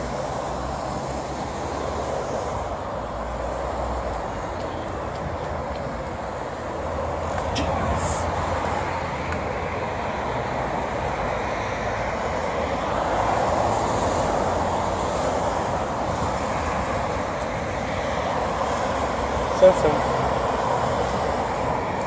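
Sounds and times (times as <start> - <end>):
road traffic noise: 0.0 - 22.0.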